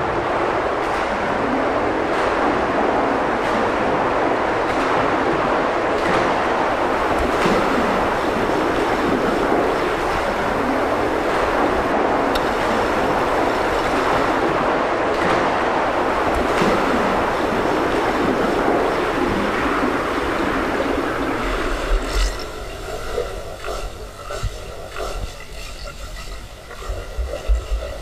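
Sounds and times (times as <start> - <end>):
muffled underwater water rush: 0.0 - 28.0
swimmer splashing: 6.6 - 24.2.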